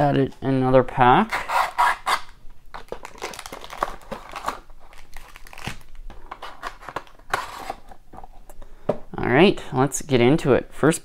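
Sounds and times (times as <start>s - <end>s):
cardboard box tearing and crinkling: 3.0s - 7.8s.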